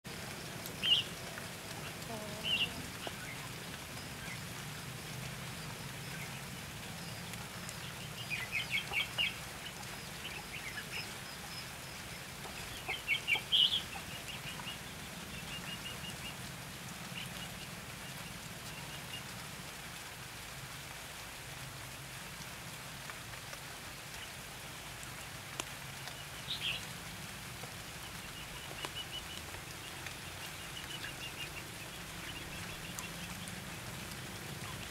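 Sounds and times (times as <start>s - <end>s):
steady rain hiss: 0.0s - 34.9s
bulbuls chirping: 0.7s - 4.9s, 28.0s - 34.9s.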